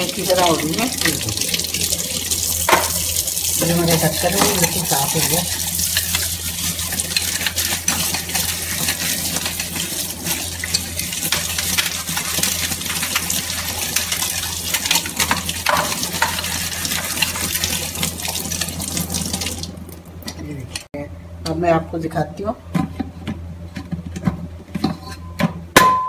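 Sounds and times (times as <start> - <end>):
tap water splashing on metal lid: 2.6 - 3.1.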